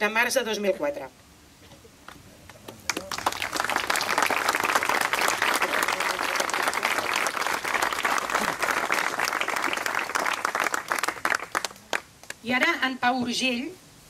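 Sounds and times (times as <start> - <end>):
crowd applauding: 2.6 - 12.4.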